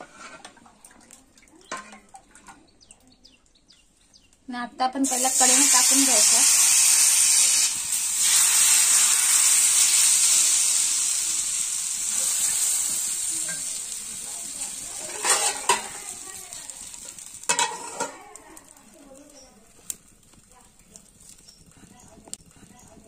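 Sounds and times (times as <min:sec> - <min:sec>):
batter sizzling on hot pan: 0:04.9 - 0:23.0
metal plate clinking: 0:15.0 - 0:16.1, 0:17.5 - 0:18.2.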